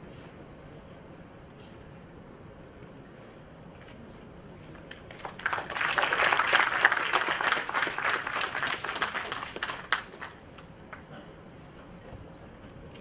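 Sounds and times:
audience applauding: 4.8s - 11.0s.

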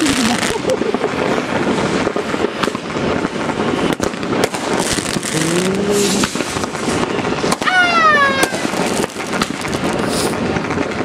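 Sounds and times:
fireworks crackling and banging: 0.0s - 11.0s.

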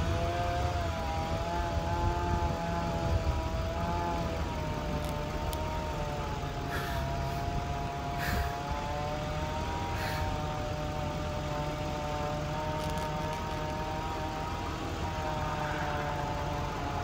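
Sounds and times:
engine running steadily: 0.0s - 17.0s
short hissing noises: 6.6s - 8.7s, 9.9s - 10.7s.

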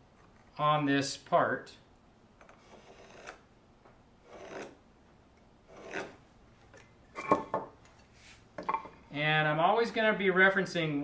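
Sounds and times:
marking tool scratching wood: 2.4s - 3.4s, 4.2s - 4.8s, 5.7s - 6.2s.

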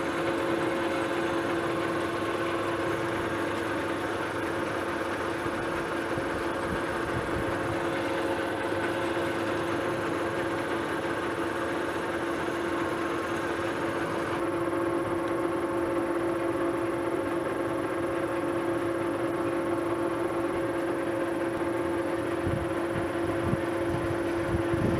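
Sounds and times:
metal lathe whining: 0.0s - 24.9s.

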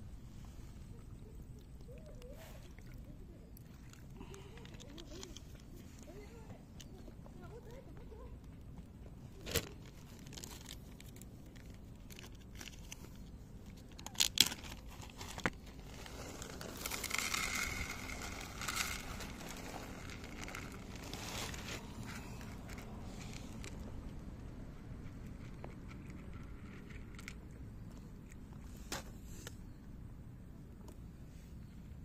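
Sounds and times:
plastic bag crinkling: 9.4s - 23.8s
kibble pouring into dish: 16.1s - 21.6s.

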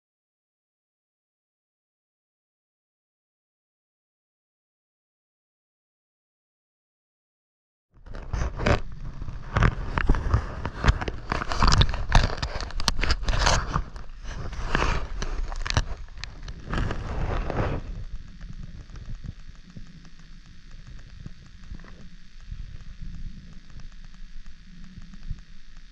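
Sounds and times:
clicks and knocks on camera: 8.0s - 23.9s
water sloshing against camera: 8.1s - 25.4s.

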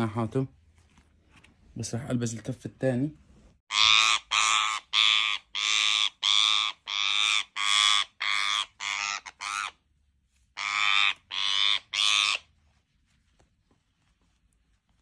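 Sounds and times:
parakeet squawking: 3.7s - 9.8s, 10.6s - 12.5s.

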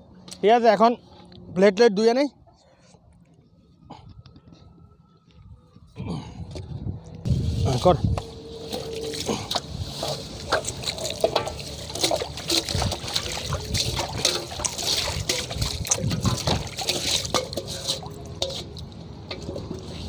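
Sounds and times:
water splashing in metal basin: 8.6s - 20.0s.

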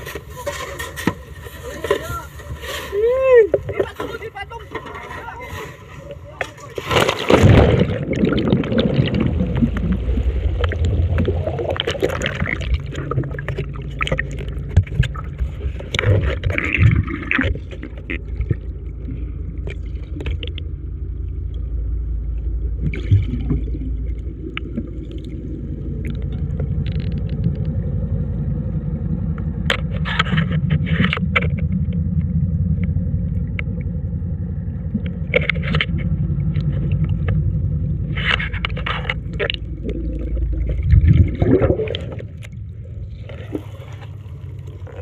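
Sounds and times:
scrapes and knocks: 0.0s - 3.0s
boat engine drone underwater: 0.0s - 45.0s.

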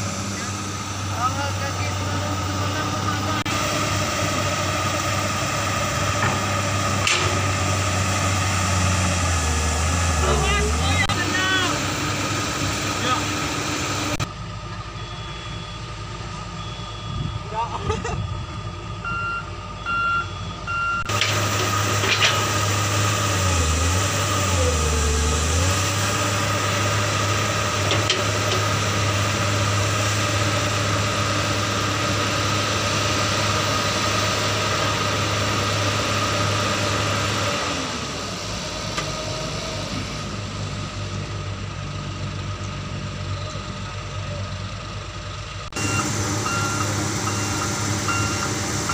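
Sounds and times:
truck diesel engine running: 0.0s - 48.9s
electronic reversing beeps: 14.8s - 21.1s, 45.8s - 48.9s.

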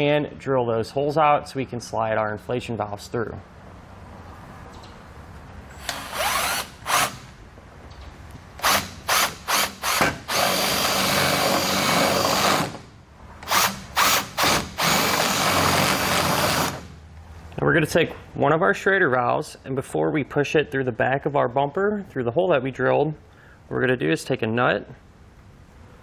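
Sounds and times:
cordless drill boring metal: 5.8s - 7.2s, 8.6s - 12.8s, 13.4s - 16.9s.

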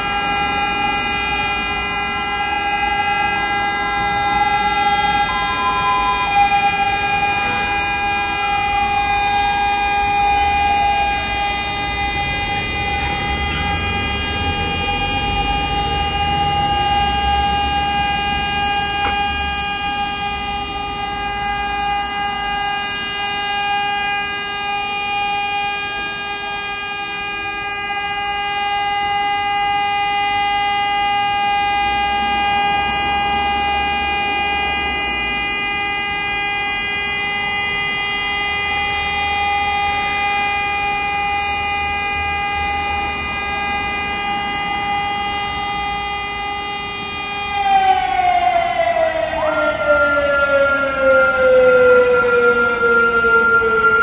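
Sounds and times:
air-raid siren steady tone: 0.0s - 54.0s
street traffic: 0.0s - 54.0s.

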